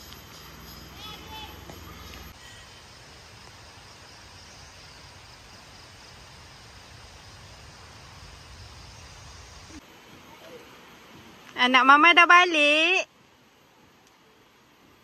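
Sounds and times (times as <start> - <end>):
faint hiss: 0.0 - 15.0
insects droning: 0.0 - 15.0.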